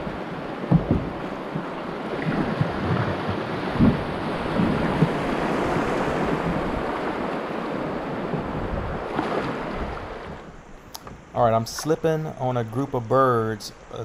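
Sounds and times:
dull thumps: 0.7 - 5.2.

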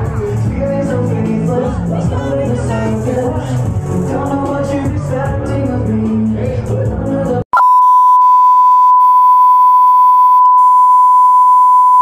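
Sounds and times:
loud pop music: 0.0 - 7.6
steady test tone beep: 7.6 - 12.0.

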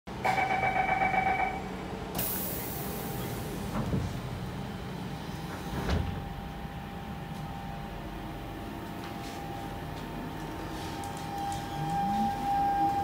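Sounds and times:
pneumatic door air hiss: 2.2 - 3.7
sliding doors thumping shut: 5.5 - 6.2.

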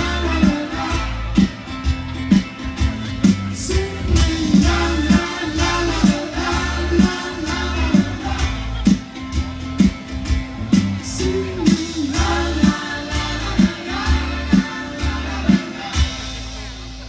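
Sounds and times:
person singing: 0.0 - 1.6, 3.5 - 9.0, 11.0 - 16.7
guitar: 0.0 - 17.0
steady drum beat: 0.0 - 17.0.

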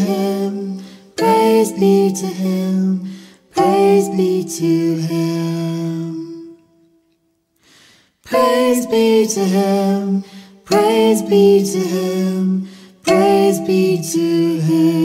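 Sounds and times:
woman singing wordless phrases: 8.3 - 15.0.

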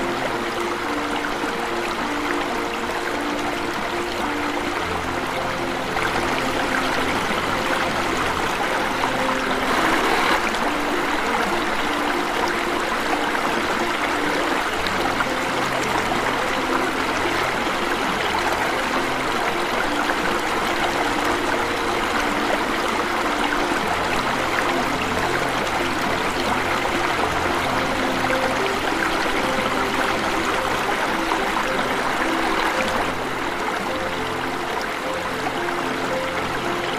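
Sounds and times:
waterfall pouring into stream: 0.0 - 36.9.

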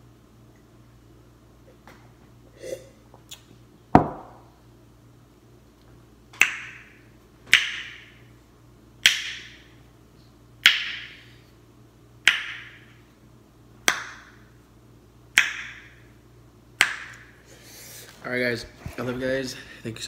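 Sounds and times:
sharp snaps or claps: 6.4 - 8.2, 9.0 - 9.7, 10.6 - 11.2, 12.2 - 12.9, 13.8 - 14.4, 15.3 - 16.0, 16.8 - 17.3.

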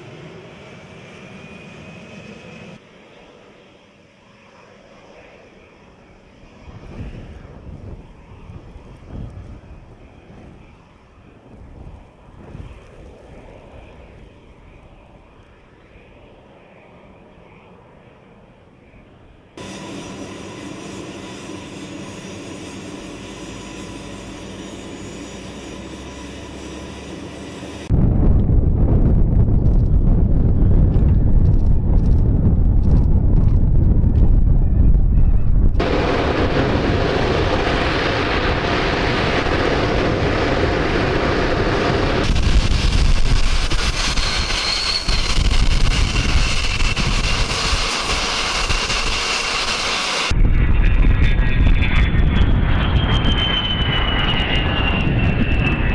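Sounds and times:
jet engine whine: 0.0 - 55.9
wind on microphone: 6.6 - 15.4, 27.8 - 49.7, 50.3 - 55.9
deep rumble: 27.8 - 49.1.

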